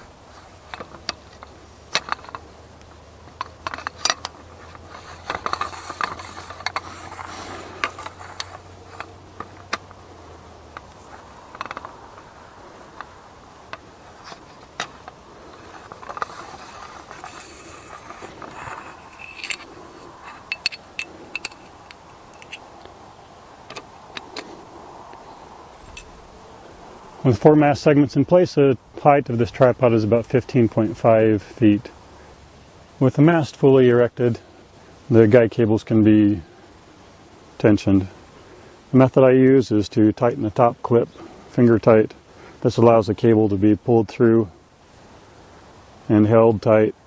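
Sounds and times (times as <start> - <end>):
sharp clicks and knocks: 0.7 - 2.5, 10.7 - 12.3, 20.3 - 22.9
metal tubes scraping and clinking: 3.4 - 9.2, 14.2 - 22.7.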